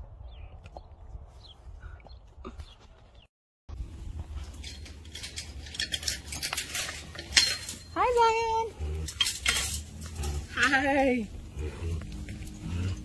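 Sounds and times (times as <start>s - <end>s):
metal gate clicking and clinking: 4.4s - 11.2s.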